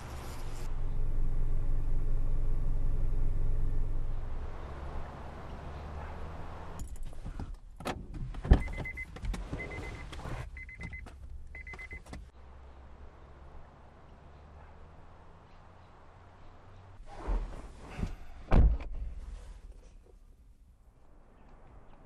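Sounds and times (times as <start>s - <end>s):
car warning chime: 8.6s - 12.0s.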